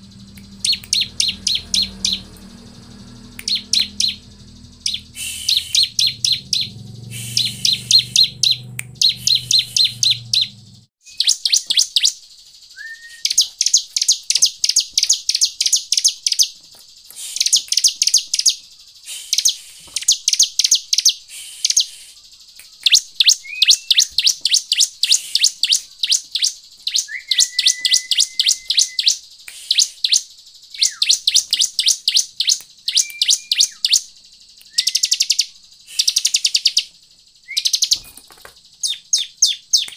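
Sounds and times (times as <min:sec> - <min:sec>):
bird calling in sharp chips: 0:00.0 - 0:02.4, 0:03.4 - 0:39.9
low hum: 0:00.0 - 0:10.9
bird whistled slurs: 0:00.3 - 0:02.3, 0:03.1 - 0:16.4, 0:17.1 - 0:38.1.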